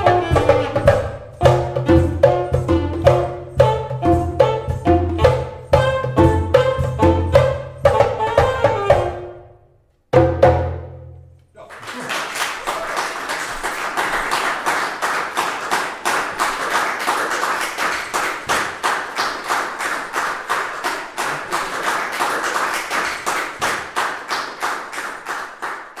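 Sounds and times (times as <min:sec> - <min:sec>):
audience applauding: 0:11.6 - 0:26.0.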